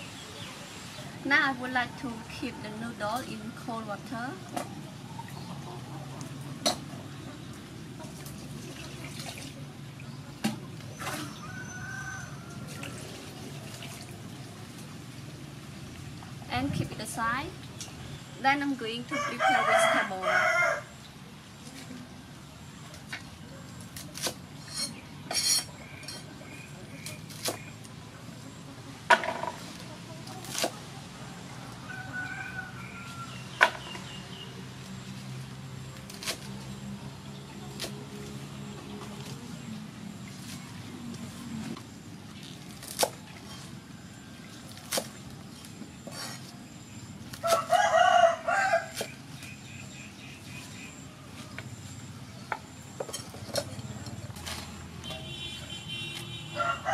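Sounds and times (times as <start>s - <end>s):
rooster crowing: 11.2s - 13.0s, 19.1s - 20.9s, 31.6s - 33.6s, 47.4s - 49.0s, 56.5s - 56.9s.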